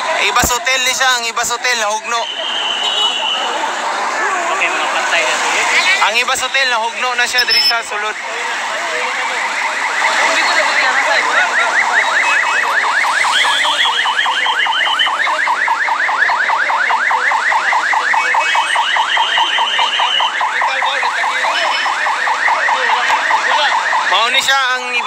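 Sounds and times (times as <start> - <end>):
warbling electronic alarm: 8.9 - 25.0.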